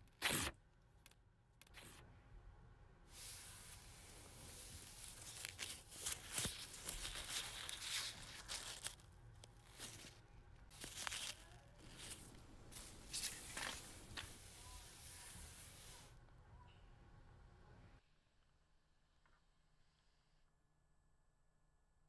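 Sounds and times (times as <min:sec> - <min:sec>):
paper rustling and tearing: 0:03.2 - 0:16.1.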